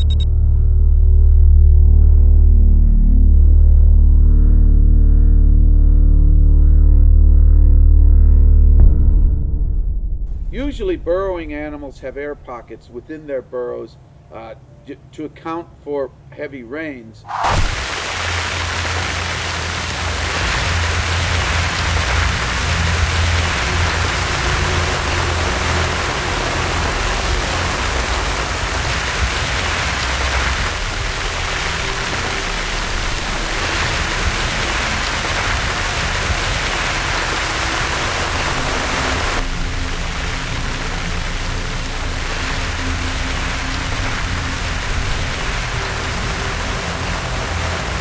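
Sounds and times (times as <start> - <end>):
heavy rain pouring: 17.3 - 48.0.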